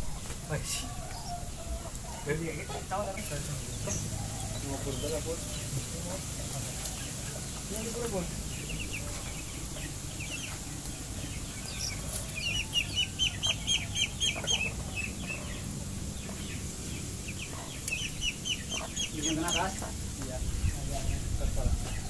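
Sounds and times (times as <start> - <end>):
chickens clucking: 0.0 - 22.0.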